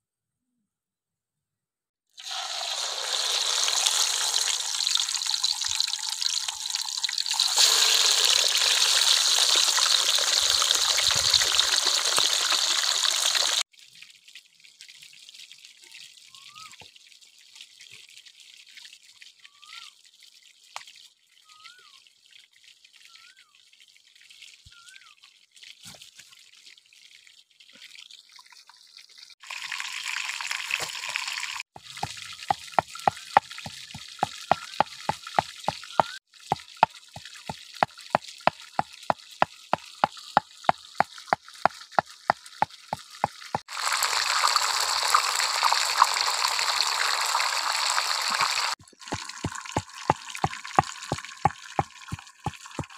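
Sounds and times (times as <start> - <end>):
fish sizzling in hot oil: 2.2 - 13.6, 40.3 - 52.9
faint bird chirps: 24.7 - 25.2.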